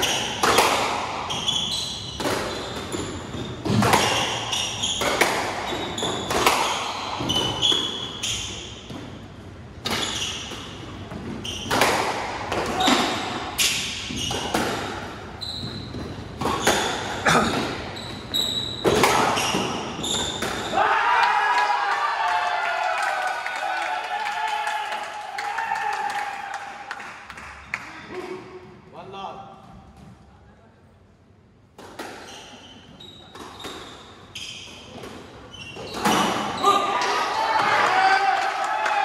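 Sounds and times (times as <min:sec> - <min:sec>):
squash ball hits: 0:00.0 - 0:01.4, 0:02.2 - 0:08.1, 0:09.8 - 0:17.8, 0:18.8 - 0:20.8
shoes squeaking on wooden floor: 0:15.3 - 0:20.7, 0:32.2 - 0:36.8.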